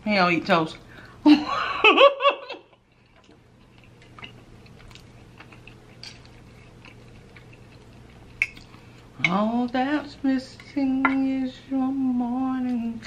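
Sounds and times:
quiet chewing: 2.9s - 9.1s.

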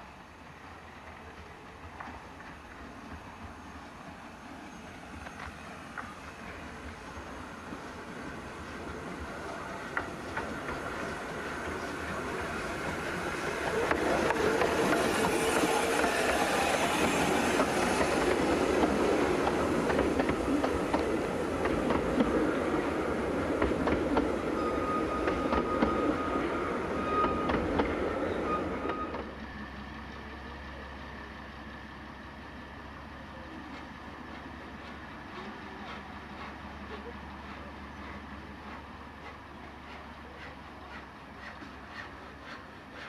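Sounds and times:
diesel locomotive hum: 0.0s - 43.0s
train wheels clicking over rail joints: 8.8s - 22.6s, 23.3s - 26.2s, 27.2s - 28.1s, 33.4s - 43.0s.

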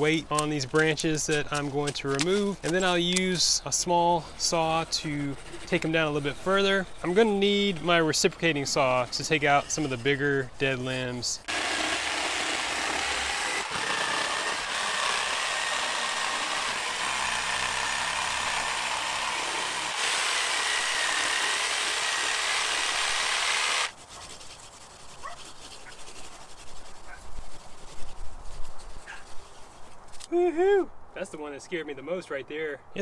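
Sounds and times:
reciprocating saw cutting branches: 0.0s - 28.2s.

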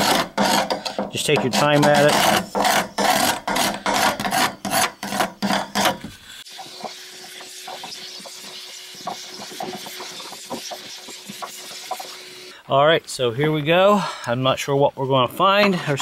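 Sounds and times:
scraping and scrubbing strokes: 0.0s - 12.6s.

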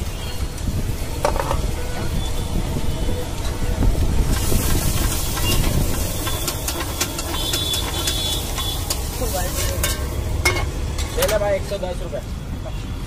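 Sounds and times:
gas flame flaring: 0.4s - 11.2s
egg mixture sizzling in pan: 4.2s - 10.9s
metal spatula scraping pan: 4.4s - 11.4s.

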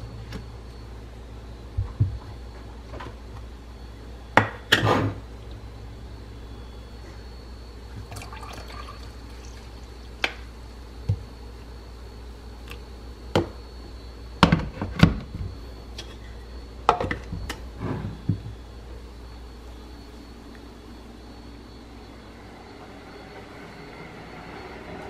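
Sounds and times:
milk pouring into mug: 8.0s - 10.0s.

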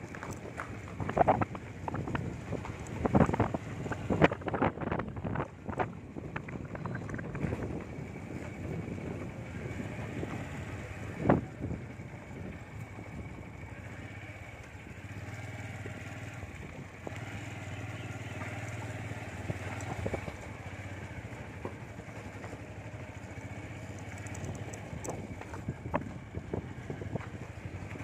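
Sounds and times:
motorcycle engine running: 0.0s - 28.0s
light clicks and rattles: 21.5s - 26.2s.

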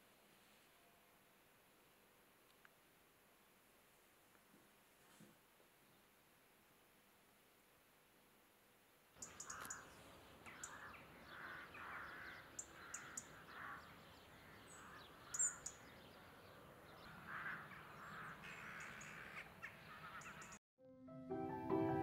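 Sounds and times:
crows cawing: 9.2s - 15.8s, 17.1s - 20.6s
small birds chirping: 9.2s - 20.6s.

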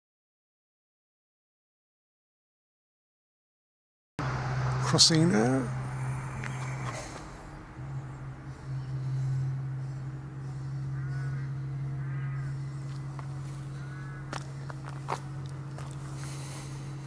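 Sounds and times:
steady low hum: 4.2s - 17.0s
crow cawing: 8.7s - 15.0s.

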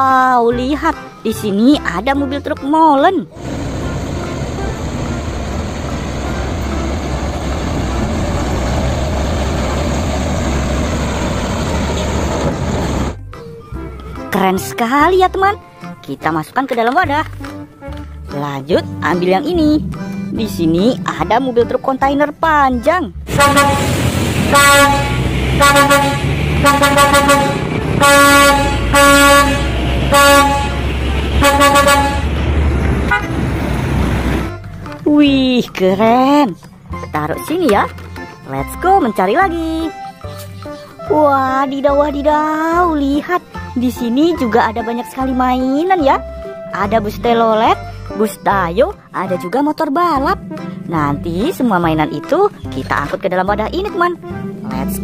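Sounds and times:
diesel truck engine passing: 3.3s - 13.9s, 17.8s - 37.7s, 45.3s - 55.0s
truck air horn blasts: 23.3s - 32.4s, 33.0s - 33.4s.

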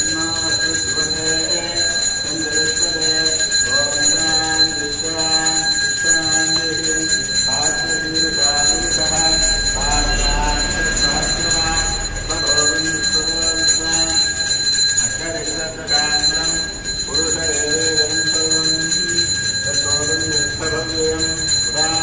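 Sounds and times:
man chanting: 0.0s - 22.0s
temple bell ringing: 0.0s - 22.0s.

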